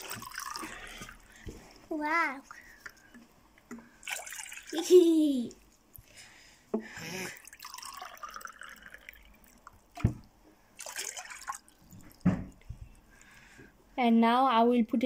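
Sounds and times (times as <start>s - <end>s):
water pouring and splashing: 0.0s - 3.1s, 3.9s - 5.0s, 7.2s - 12.6s.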